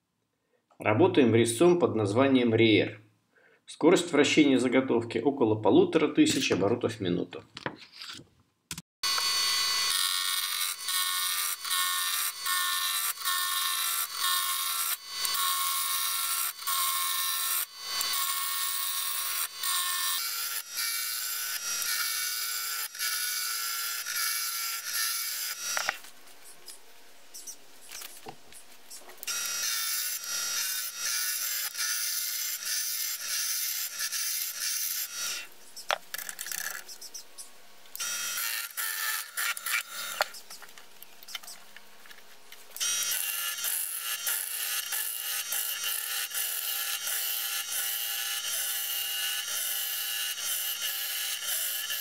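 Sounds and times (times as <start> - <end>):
lathe gouge shaving wood: 9.0 - 26.0, 42.8 - 52.0.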